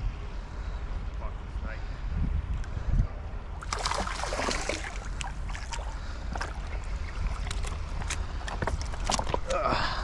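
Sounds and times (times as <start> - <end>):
wind rumble on microphone: 0.0 - 10.0
fish splashing in water: 3.6 - 8.1.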